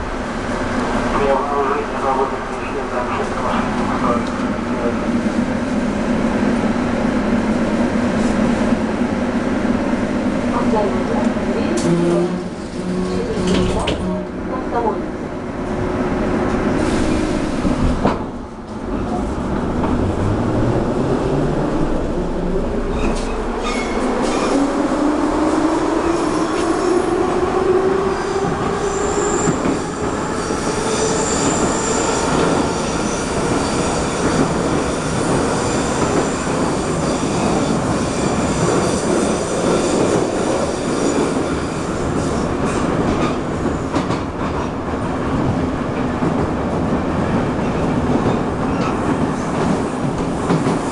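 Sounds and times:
wheel on rail rumble: 0:15.6 - 0:30.4
high wheel squeal: 0:22.9 - 0:24.7, 0:28.2 - 0:42.4.

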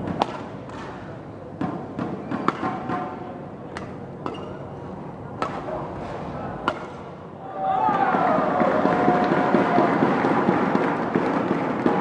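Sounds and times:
racket striking shuttlecock: 0:00.0 - 0:01.0, 0:01.6 - 0:04.6, 0:05.4 - 0:05.8, 0:06.6 - 0:07.1
indoor arena hum: 0:00.0 - 0:12.0.

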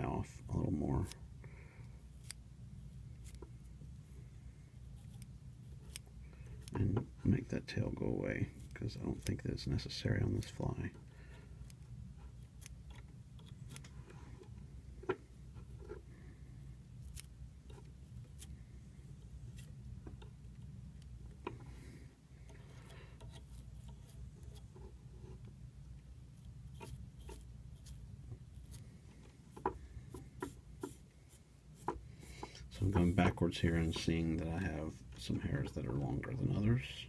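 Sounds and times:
low steady hum: 0:00.0 - 0:37.0
small scissors snipping: 0:02.2 - 0:02.4, 0:05.1 - 0:06.8, 0:11.6 - 0:14.0, 0:17.0 - 0:18.5.

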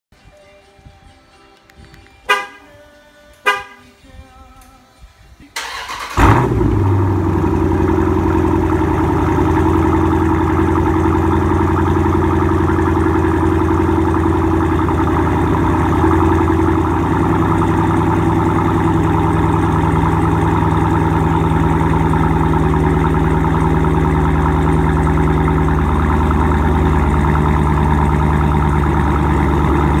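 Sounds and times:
engine idling loudly: 0:06.2 - 0:30.0.

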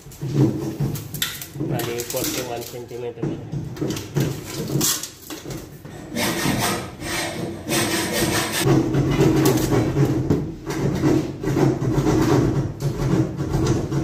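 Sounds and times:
pencil scraping on board: 0:06.1 - 0:08.7.

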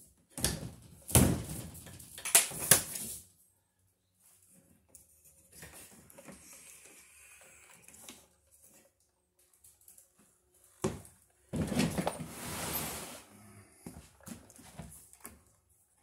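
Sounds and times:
electrical cable rustling and scraping: 0:11.6 - 0:13.3.

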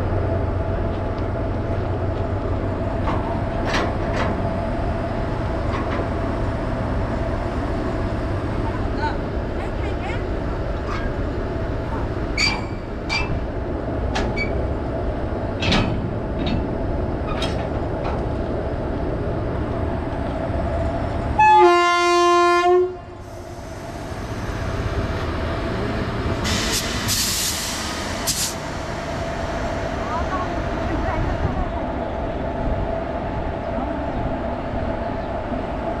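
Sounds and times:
electric locomotive rumbling and humming: 0:00.0 - 0:36.0
locomotive horn blast: 0:21.4 - 0:23.2.

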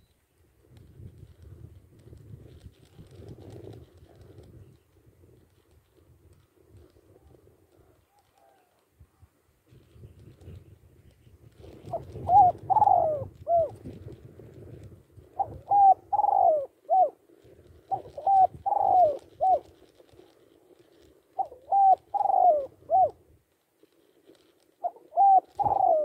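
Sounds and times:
dove cooing: 0:11.6 - 0:23.2, 0:24.3 - 0:26.0.

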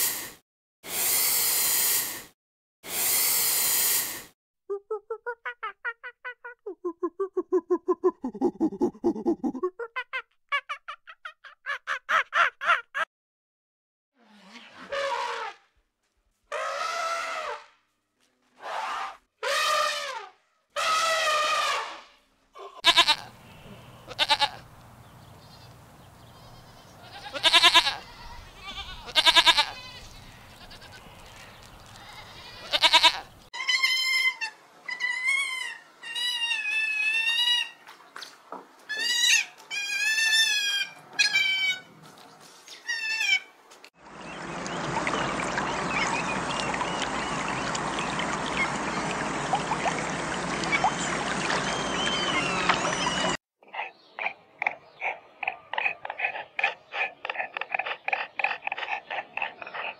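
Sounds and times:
goats bleating: 0:22.7 - 0:24.7, 0:25.5 - 0:34.0.

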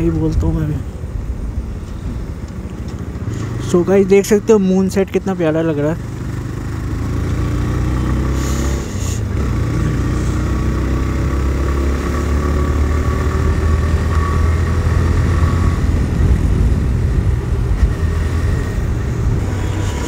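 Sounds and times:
motorcycle engine running: 0:05.4 - 0:20.0.

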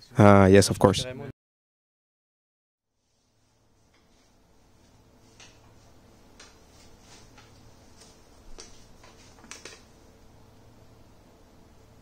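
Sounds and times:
room hiss: 0:02.9 - 0:12.0
steady low hum: 0:02.9 - 0:12.0.

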